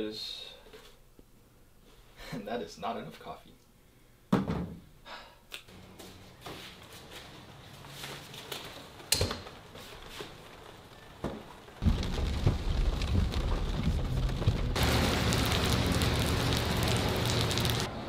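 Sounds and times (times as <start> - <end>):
hissing crackling rush: 11.8 - 17.9
machine humming: 14.4 - 18.0.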